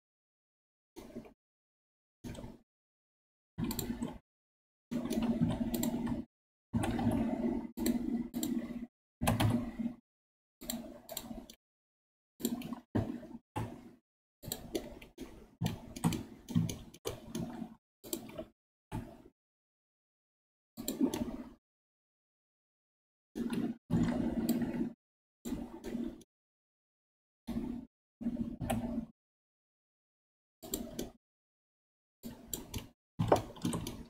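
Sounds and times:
keyboard and mouse clicks: 0:02.2 - 0:02.6, 0:03.6 - 0:04.2, 0:04.9 - 0:10.0, 0:10.6 - 0:11.6, 0:12.4 - 0:19.3, 0:20.8 - 0:21.5, 0:23.4 - 0:24.9, 0:25.5 - 0:26.2, 0:28.4 - 0:29.0, 0:30.6 - 0:31.2, 0:32.2 - 0:34.0.

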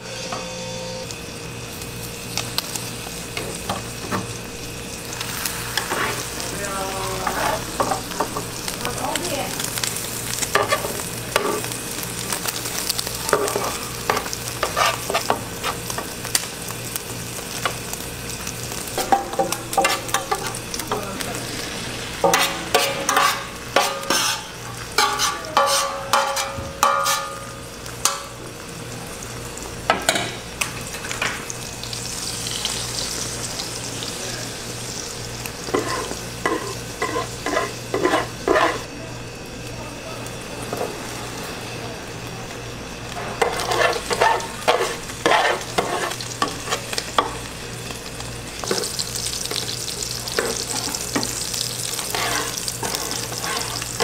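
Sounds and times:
egg sizzling in a pan: 0:00.9 - 0:38.9, 0:42.6 - 0:54.0
plastic spatulas scraping a pan: 0:14.6 - 0:15.8, 0:22.2 - 0:27.3, 0:35.8 - 0:38.8, 0:43.4 - 0:46.9, 0:52.1 - 0:53.8.

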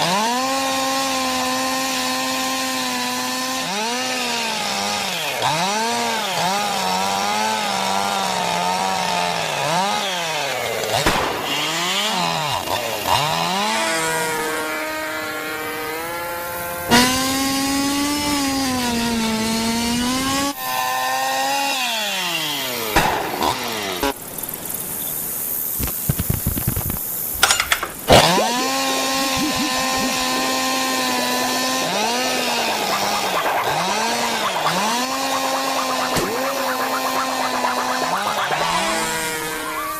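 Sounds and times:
cartoon insects buzzing in flight: 0:21.9 - 0:27.4, 0:28.0 - 0:39.9.

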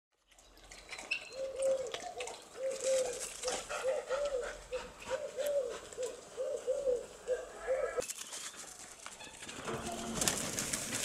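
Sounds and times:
birds cooing: 0:01.0 - 0:08.0.

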